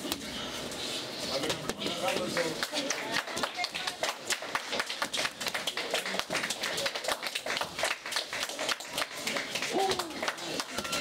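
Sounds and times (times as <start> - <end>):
small group clapping: 1.7 - 11.0.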